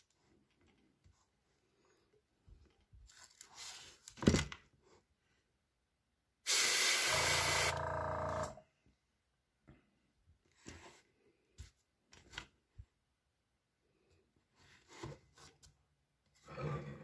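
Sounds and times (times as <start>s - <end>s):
airbrush spraying: 6.5s - 7.7s.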